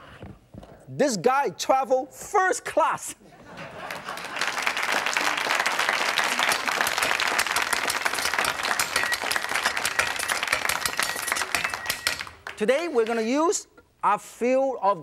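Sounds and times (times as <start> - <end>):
audience applauding: 3.6 - 12.6.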